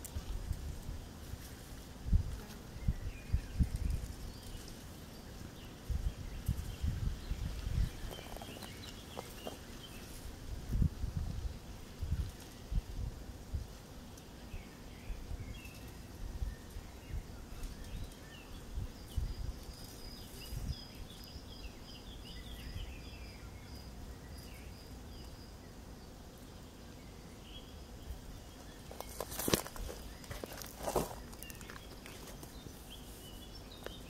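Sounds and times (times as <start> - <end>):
wind rumble on microphone: 0.0 - 4.7, 5.7 - 13.8, 15.0 - 23.2
small birds chirping: 0.0 - 13.1, 13.7 - 34.0.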